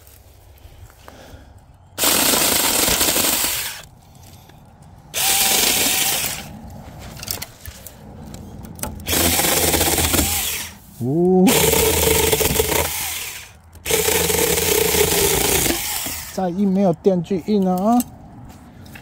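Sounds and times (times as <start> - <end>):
electric saw cutting stalks: 2.0 - 3.9, 5.1 - 6.6, 9.0 - 16.5.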